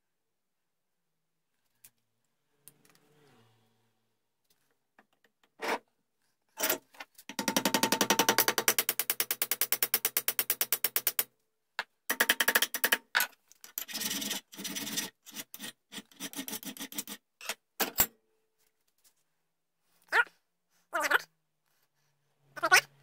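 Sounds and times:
file scraping on brass: 0:13.8 - 0:17.6.

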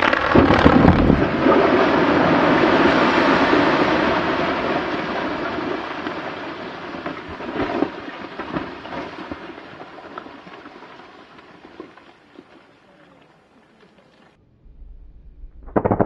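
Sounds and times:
rock blast rumble: 0:00.0 - 0:05.6, 0:14.5 - 0:16.0
falling rock debris clatter: 0:00.0 - 0:12.6.

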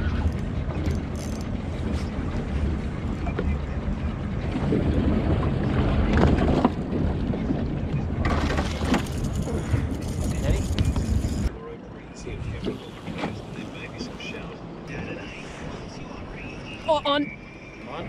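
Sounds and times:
wind rumble: 0:00.0 - 0:11.5
boat on open water: 0:00.0 - 0:18.0.

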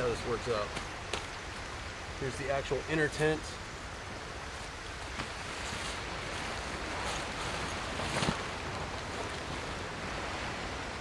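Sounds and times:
surf: 0:00.0 - 0:11.0
wind: 0:00.0 - 0:11.0
tent fabric rustling and flapping: 0:04.5 - 0:11.0.

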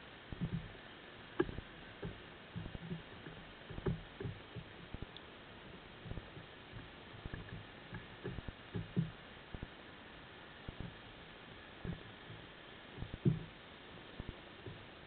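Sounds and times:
steady underwater hiss: 0:00.0 - 0:15.0
low underwater thuds and knocks: 0:00.4 - 0:00.8, 0:01.4 - 0:09.7, 0:10.7 - 0:11.0, 0:11.8 - 0:13.6, 0:14.2 - 0:14.9.

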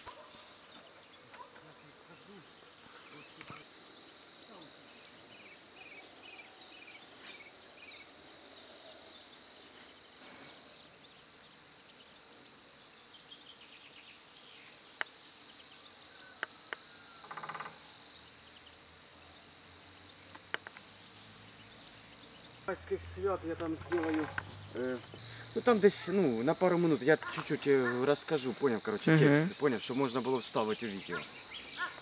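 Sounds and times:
high-pitched insect trill: 0:02.2 - 0:11.7, 0:12.8 - 0:32.0
bird chirps: 0:20.0 - 0:26.4, 0:27.2 - 0:32.0.

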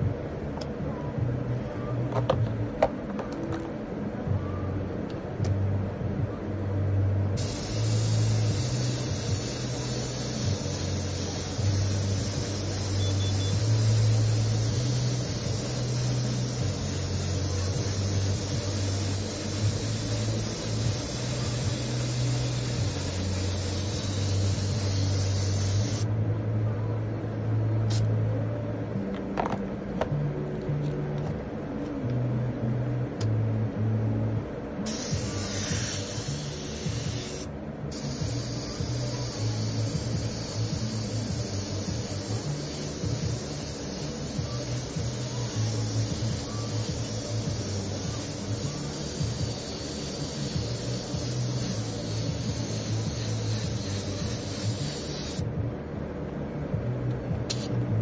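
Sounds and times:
low machine hum: 0:00.0 - 0:58.0
steady hiss: 0:07.4 - 0:26.1, 0:34.8 - 0:55.5.

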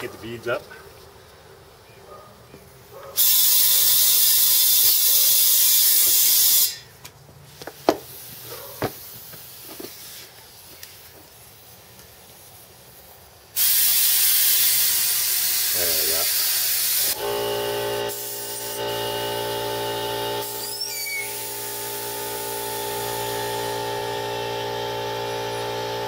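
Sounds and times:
compressed air hissing: 0:03.1 - 0:06.9, 0:07.6 - 0:11.7, 0:12.3 - 0:17.2, 0:18.1 - 0:18.9, 0:20.4 - 0:23.8.

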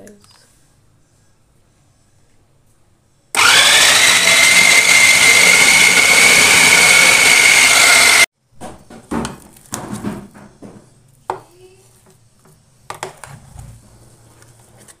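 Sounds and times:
food processor motor whining: 0:03.4 - 0:08.3.

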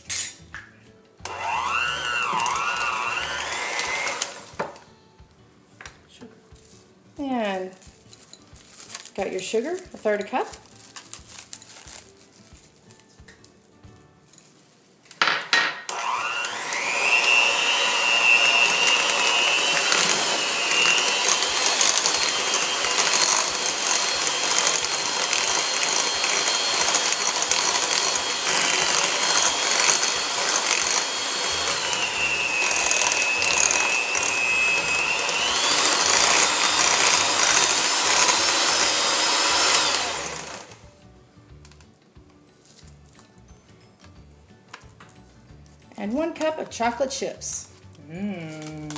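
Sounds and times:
electric hand mixer motor whining: 0:01.2 - 0:04.9, 0:15.9 - 0:40.8.

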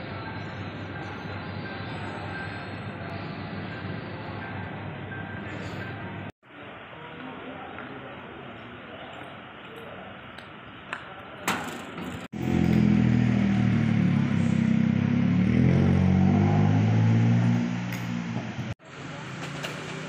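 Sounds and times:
vehicle engine running: 0:12.3 - 0:18.8.

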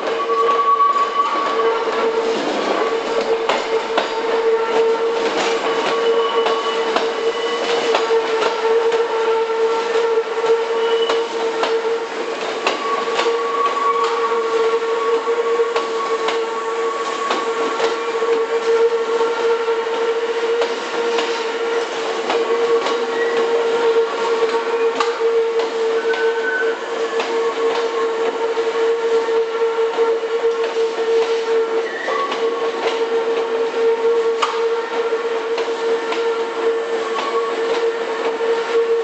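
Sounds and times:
steady tone from train: 0:00.0 - 0:39.0
train wheels clattering over rail joints: 0:01.5 - 0:08.7.

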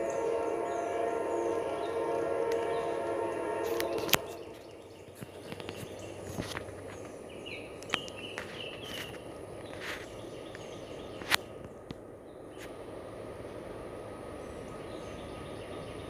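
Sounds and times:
locomotive horn: 0:00.0 - 0:04.9
birds chirping: 0:00.0 - 0:12.7, 0:14.2 - 0:16.0.

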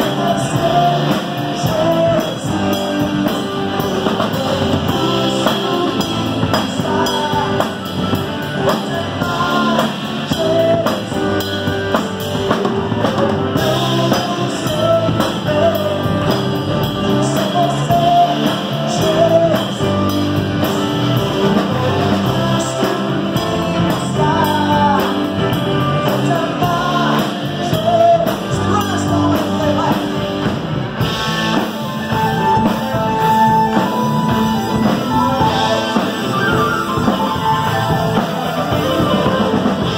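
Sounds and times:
man singing into a microphone: 0:00.0 - 0:30.6, 0:33.4 - 0:39.9
live band playing: 0:00.0 - 0:39.9.

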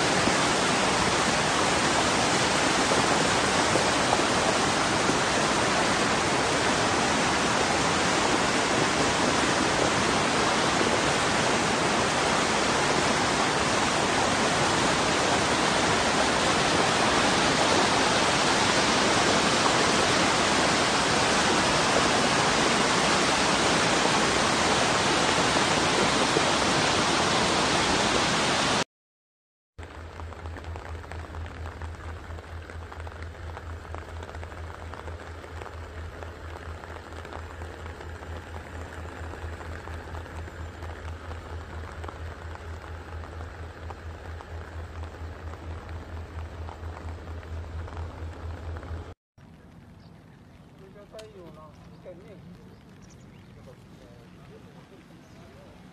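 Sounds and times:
floodwater rushing: 0:00.0 - 0:28.8, 0:29.8 - 0:55.9
low hum: 0:29.8 - 0:55.9.

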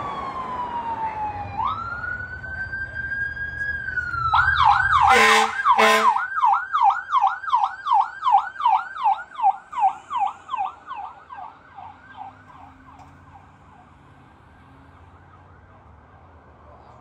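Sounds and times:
fire truck siren yelping: 0:00.0 - 0:15.7
faint street hum: 0:00.0 - 0:17.0.

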